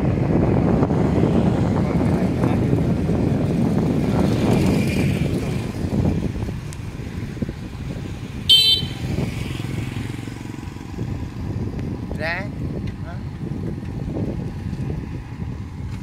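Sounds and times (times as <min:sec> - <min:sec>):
low rumble of riding: 0:00.0 - 0:16.0
short high horn beep: 0:08.5 - 0:09.0.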